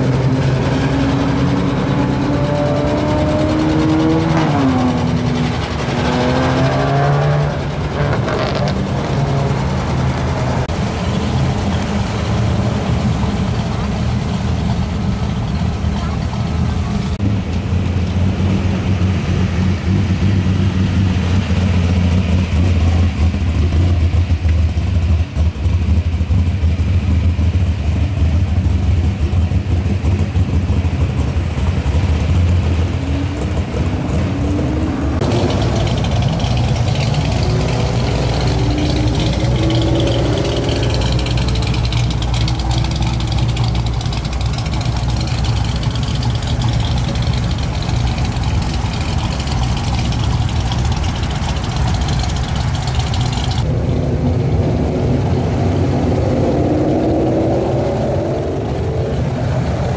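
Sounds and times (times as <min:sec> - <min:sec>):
engine revving: 0:00.0 - 0:13.5, 0:29.6 - 0:59.9
car engine running: 0:00.0 - 0:59.9.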